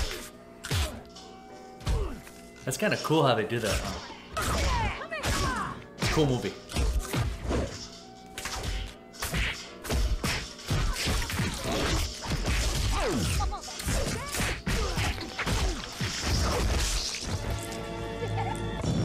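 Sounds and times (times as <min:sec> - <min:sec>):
punches and smacks: 0:00.0 - 0:01.1, 0:01.8 - 0:02.2, 0:03.7 - 0:07.8, 0:08.4 - 0:17.6.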